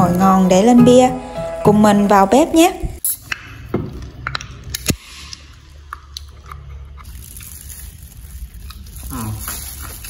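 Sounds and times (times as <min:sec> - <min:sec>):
person chewing and biting: 0:03.1 - 0:10.0.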